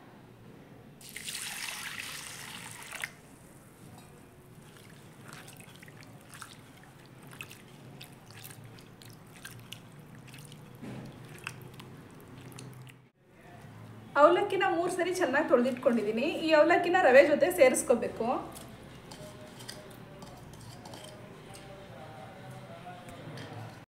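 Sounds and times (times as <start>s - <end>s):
small splashes and drips: 1.0s - 3.2s, 4.6s - 13.1s
water pouring into bowl: 1.0s - 3.2s, 4.6s - 13.0s
hand swishing in water: 4.6s - 13.0s.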